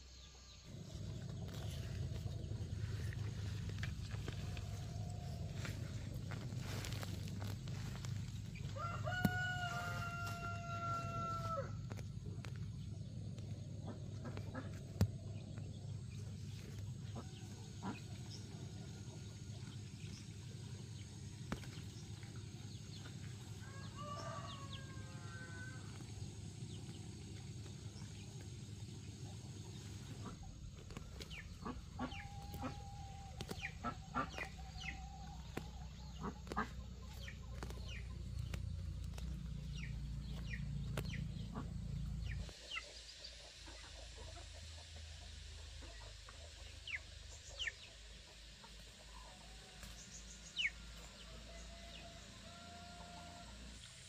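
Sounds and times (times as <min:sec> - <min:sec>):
steady low rumble: 0:00.0 - 0:52.5
chickens clucking: 0:29.1 - 0:53.1.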